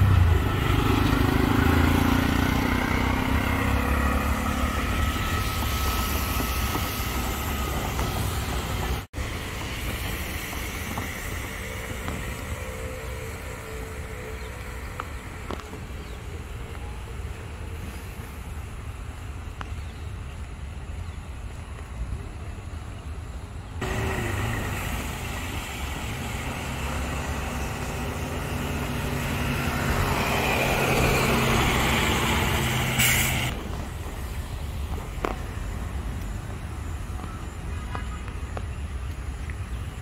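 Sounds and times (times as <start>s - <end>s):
vehicle engine passing close: 0.0s - 9.1s, 23.8s - 34.3s
road traffic rumble: 0.0s - 40.0s.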